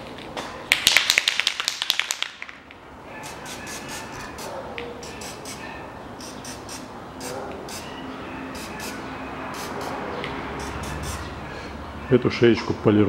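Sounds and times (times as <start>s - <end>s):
aerosol can spraying: 3.2s - 4.5s, 6.2s - 6.9s, 9.6s - 10.0s.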